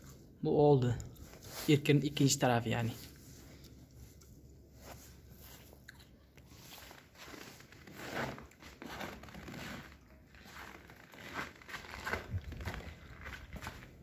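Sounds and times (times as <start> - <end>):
footsteps crunching on gritty concrete: 6.7 - 14.0.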